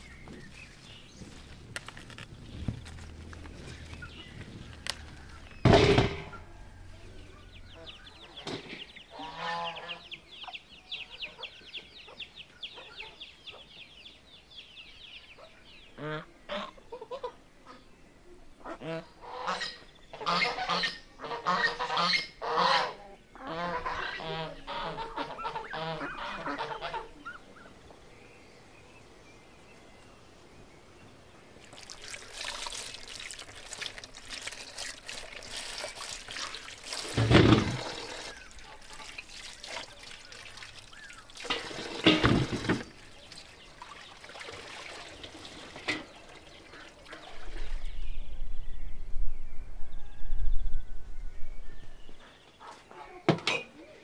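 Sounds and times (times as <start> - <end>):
water pouring and splashing: 0.0 - 9.6, 31.4 - 48.2
geese honking: 9.1 - 10.1, 18.6 - 27.7
low rumble: 47.5 - 52.2.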